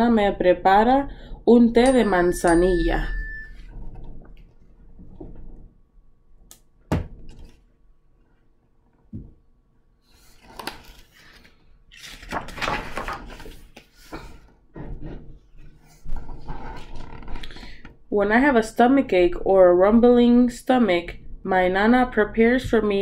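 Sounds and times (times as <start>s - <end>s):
knocks and taps on book: 6.9s - 7.2s, 9.1s - 9.4s
page turning rustle: 10.2s - 14.4s.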